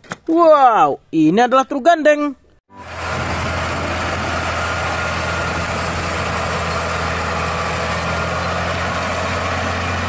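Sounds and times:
truck diesel engine humming: 2.7 - 10.0.

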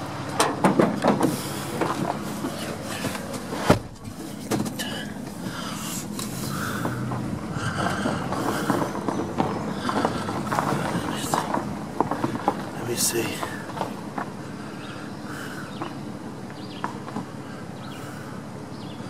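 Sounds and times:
truck engine running: 0.0 - 19.0
truck door shutting: 0.4 - 7.3
footsteps on gravel: 1.3 - 14.4.

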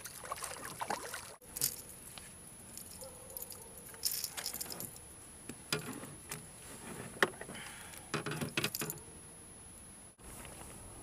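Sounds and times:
metal hooks clinking: 2.8 - 5.0.

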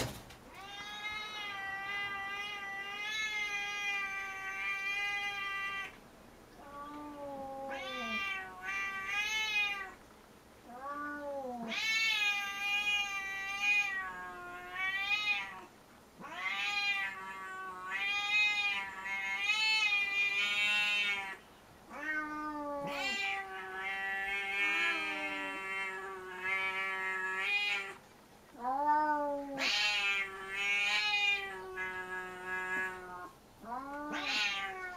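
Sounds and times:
angry cat yowling: 16.2 - 28.0, 28.6 - 34.9.

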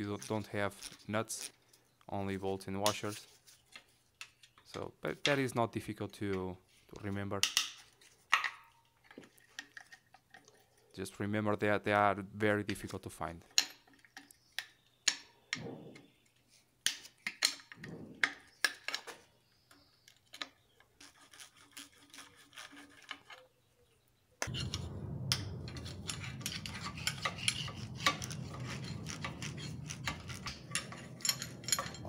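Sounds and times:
steady low hum: 24.4 - 32.0.

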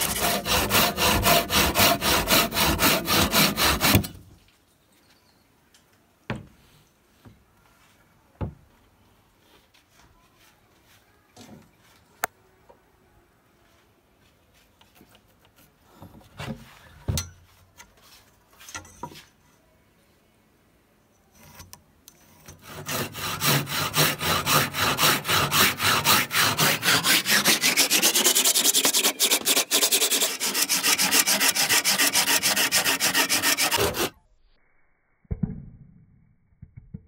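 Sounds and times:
handsaw cutting wood: 0.0 - 4.1, 22.5 - 34.2.

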